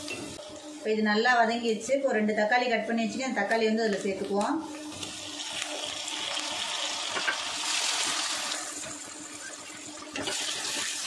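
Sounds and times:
vegetables sizzling in hot oil: 4.2s - 11.0s.

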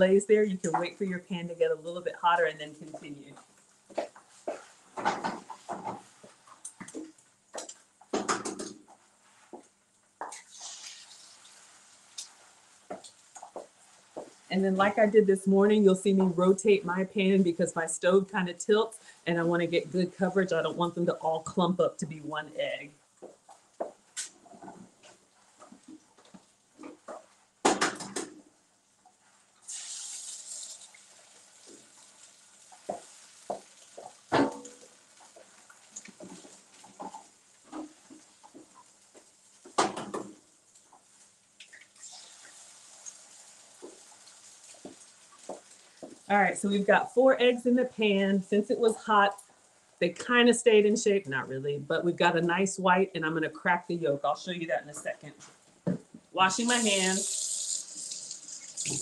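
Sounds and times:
eggs sizzling in hot pan: 2.2s - 21.0s, 28.5s - 51.3s, 55.5s - 59.0s.

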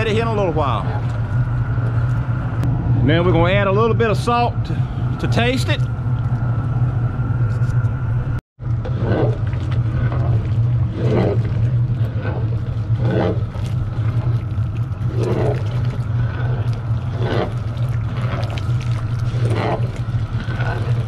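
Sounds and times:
burner roaring: 0.0s - 21.0s
paddle stirring thick stew: 8.7s - 21.0s.

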